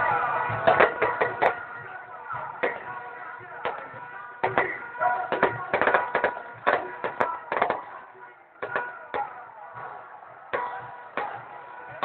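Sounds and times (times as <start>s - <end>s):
background din: 0.0s - 12.0s
firecrackers exploding: 3.7s - 8.0s.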